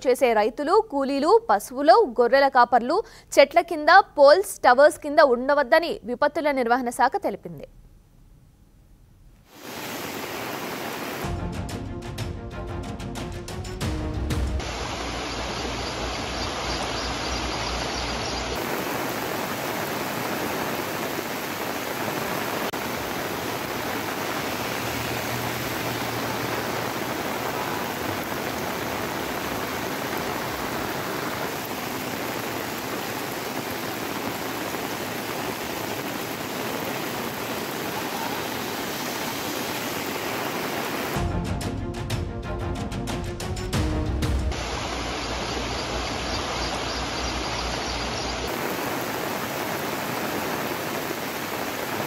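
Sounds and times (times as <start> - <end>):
water rushing: 9.5 - 11.4, 14.6 - 41.2, 44.5 - 52.0.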